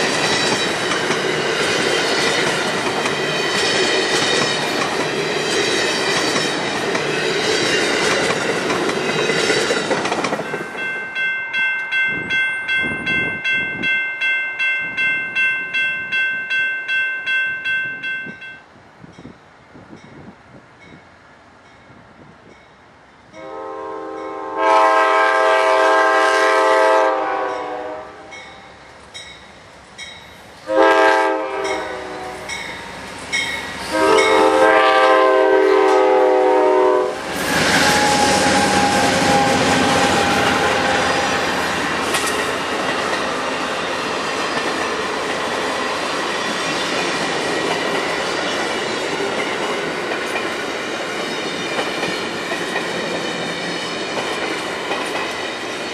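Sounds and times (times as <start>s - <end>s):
train wheels clattering on rails: 0.0s - 11.2s, 37.2s - 55.9s
diesel locomotive engines: 0.0s - 55.9s
train horn blasts: 23.3s - 28.6s, 30.6s - 32.8s, 33.8s - 41.6s.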